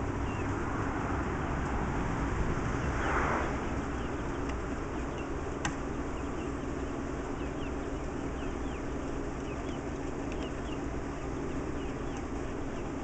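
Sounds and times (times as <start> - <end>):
bird chirps: 2.8 - 13.0.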